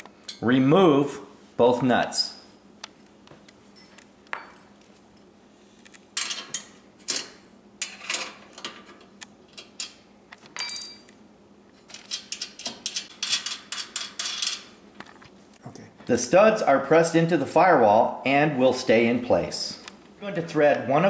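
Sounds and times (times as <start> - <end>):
wrench and nuts clinking: 10.6 - 11.1, 12.0 - 14.7.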